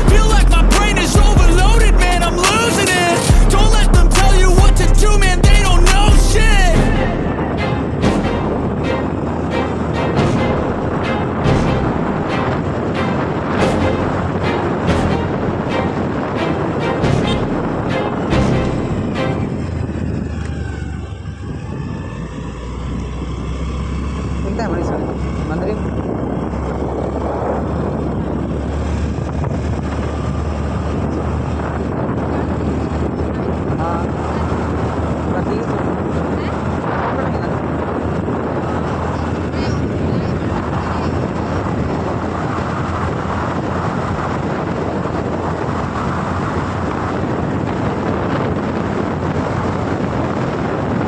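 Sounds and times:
road noise: 0:00.0 - 0:51.0
wind noise on microphone: 0:00.0 - 0:51.0
scooter engine: 0:18.8 - 0:26.8.

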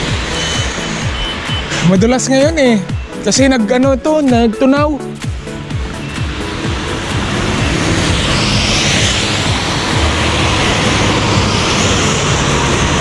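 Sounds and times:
tyres hissing on wet road: 0:00.0 - 0:03.2, 0:05.5 - 0:13.0.

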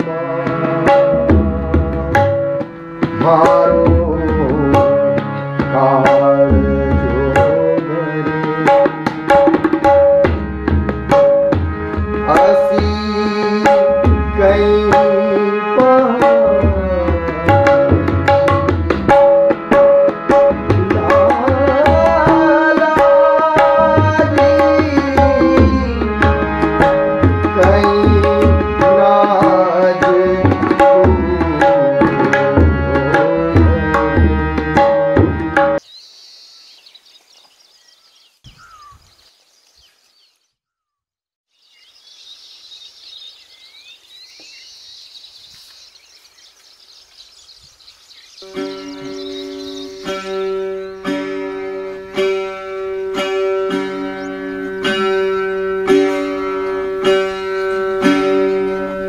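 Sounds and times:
tabla rhythm: 0:00.0 - 0:35.8, 0:48.4 - 0:59.0
high chirping: 0:35.8 - 0:52.3, 0:53.9 - 0:54.9
sustained gliding melody: 0:48.4 - 0:59.0.

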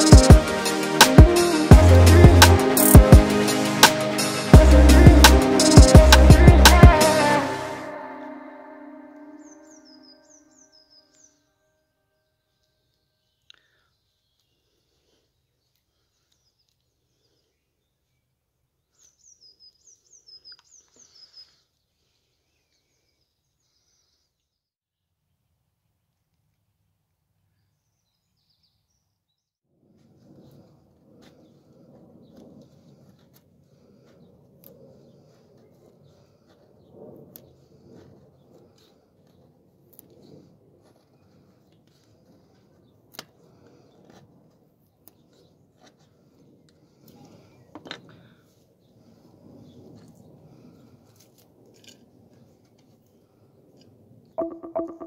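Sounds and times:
songbird singing high notes: 0:06.9 - 0:11.3.

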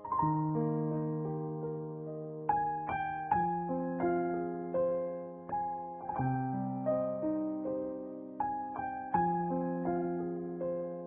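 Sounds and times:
gentle piano music: 0:00.0 - 0:11.0.

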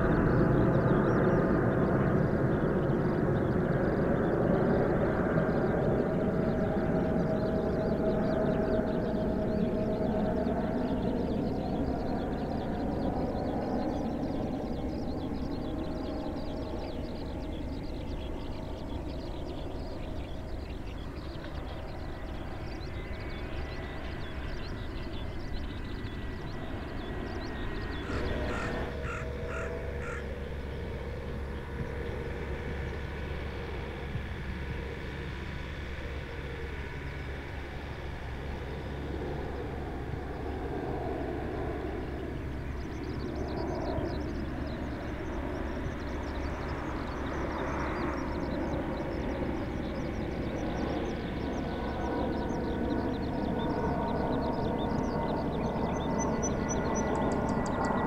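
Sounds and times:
jet airliner rumble: 0:00.0 - 0:58.0
crow cawing: 0:28.0 - 0:30.3.

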